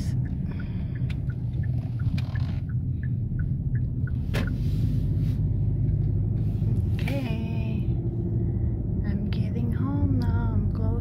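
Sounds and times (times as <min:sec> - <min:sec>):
turn signal ticking: 0:00.0 - 0:04.6
car engine and tyre rumble: 0:00.0 - 0:11.0.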